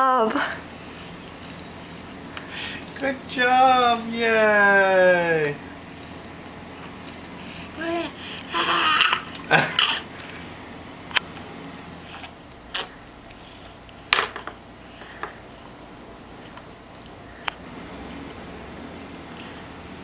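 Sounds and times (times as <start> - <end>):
baby babbling: 7.8 - 9.3.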